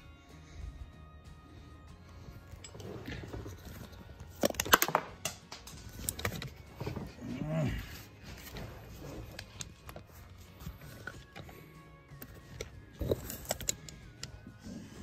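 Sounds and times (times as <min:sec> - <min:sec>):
low grunt: 0:07.1 - 0:08.1
metal hand tools clinking: 0:12.2 - 0:14.4.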